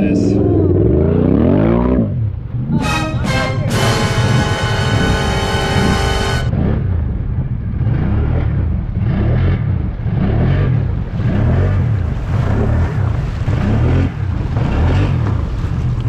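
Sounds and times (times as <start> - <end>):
atv engine revving: 0.0 - 2.8, 3.8 - 15.6
rushing noise: 2.4 - 9.5.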